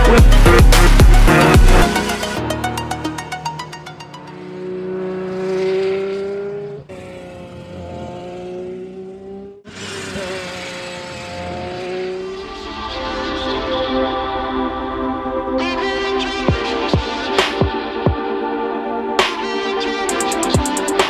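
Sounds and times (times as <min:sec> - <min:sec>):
car engine at high revs: 0:03.4 - 0:13.4.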